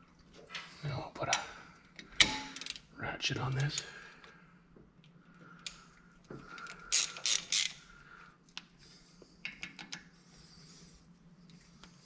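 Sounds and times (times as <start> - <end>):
socket ratchet clicking: 6.9 - 7.8.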